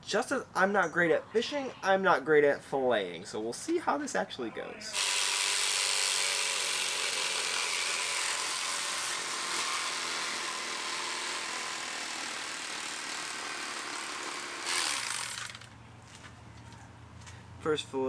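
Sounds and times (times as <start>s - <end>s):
electric fillet knife buzzing: 5.0s - 15.7s.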